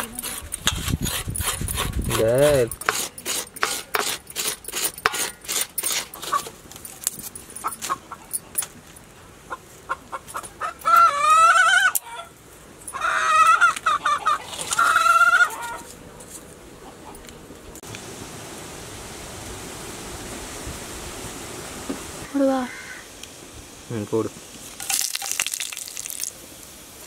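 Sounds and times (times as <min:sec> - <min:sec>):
coconut scraper rasping: 0:00.0 - 0:06.5
chicken calling loudly: 0:09.9 - 0:12.3, 0:12.9 - 0:15.9.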